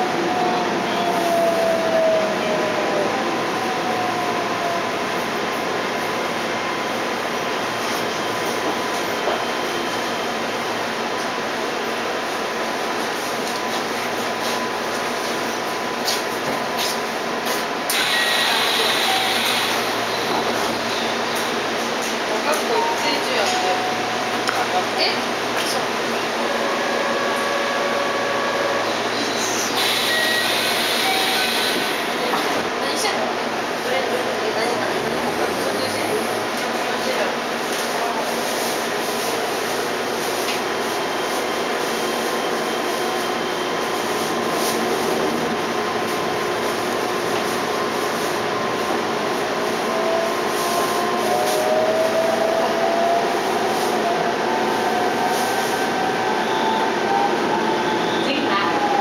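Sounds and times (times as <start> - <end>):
train interior hum and hiss: 0.0 - 59.0
train door chime: 22.6 - 24.6.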